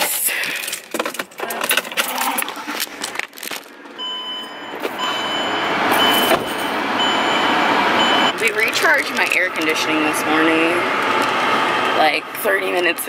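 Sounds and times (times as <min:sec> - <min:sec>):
car warning chime beeping: 0:04.0 - 0:09.6
air-conditioning blower: 0:05.0 - 0:13.0.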